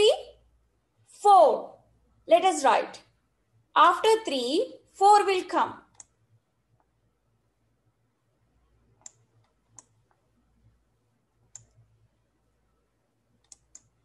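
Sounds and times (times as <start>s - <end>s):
computer mouse clicks: 5.9s - 6.2s, 8.9s - 10.3s, 11.4s - 11.9s, 13.3s - 14.0s.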